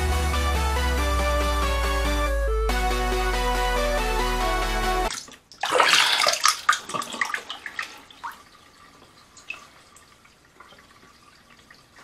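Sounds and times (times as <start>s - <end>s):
water dripping into basin: 5.1s - 12.0s
water splashing in sink: 5.1s - 12.0s.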